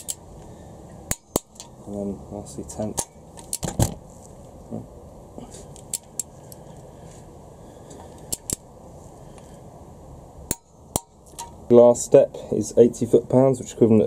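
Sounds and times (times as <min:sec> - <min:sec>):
steady low hiss: 0:00.0 - 0:14.0.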